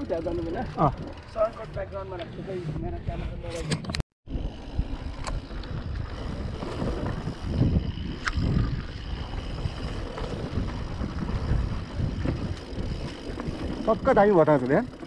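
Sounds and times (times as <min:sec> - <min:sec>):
mountain bike rattling over rough ground: 0:00.0 - 0:15.0
wind buffeting microphone: 0:04.3 - 0:14.9.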